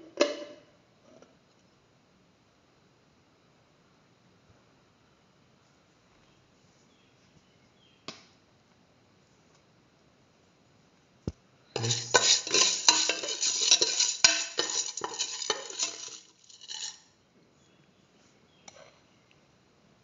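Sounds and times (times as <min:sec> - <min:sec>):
metal spoon stirring dry beans: 0:11.8 - 0:17.1.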